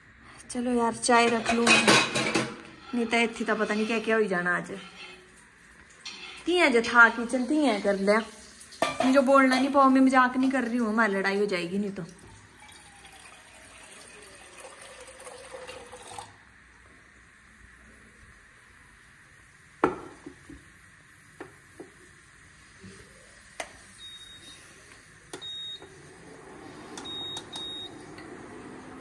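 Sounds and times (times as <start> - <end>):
water running into a kettle: 1.2 - 16.5, 21.3 - 29.0
kettle clunk on cooktop: 19.8 - 20.6
short high beeps: 27.0 - 28.0.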